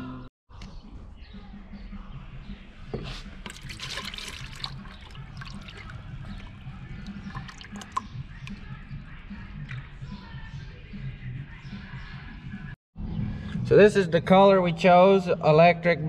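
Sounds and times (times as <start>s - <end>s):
paint pouring into plastic bucket: 3.4s - 8.1s.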